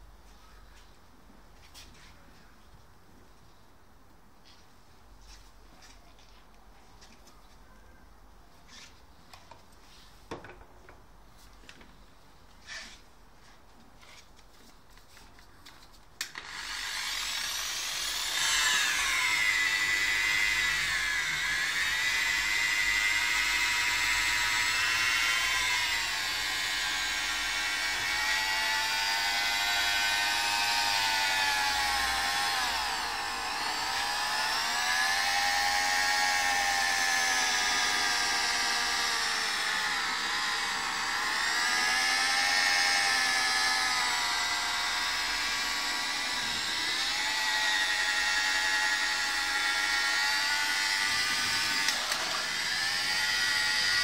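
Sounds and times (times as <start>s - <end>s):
rotary polisher motor whine: 16.3s - 54.0s.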